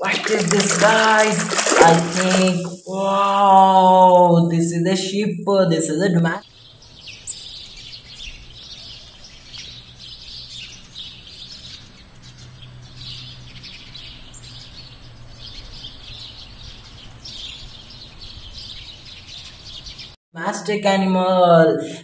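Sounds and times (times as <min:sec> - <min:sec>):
birds chirping and singing: 0:06.4 - 0:20.1.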